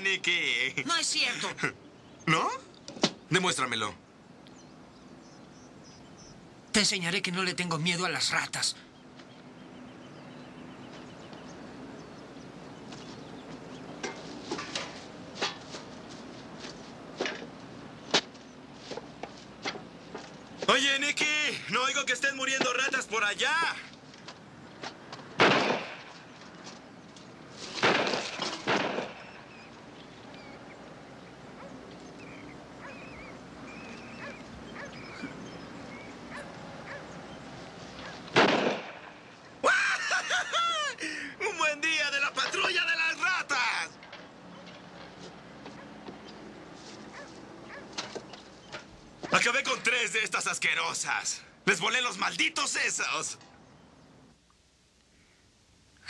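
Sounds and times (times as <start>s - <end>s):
steady outdoor hiss: 0.0s - 56.0s
footsteps crunching over debris: 12.8s - 20.8s
rats squeaking: 31.6s - 37.2s.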